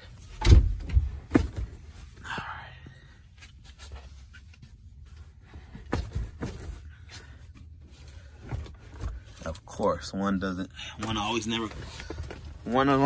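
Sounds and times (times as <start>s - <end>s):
seat cushion thump: 0.4s - 1.8s.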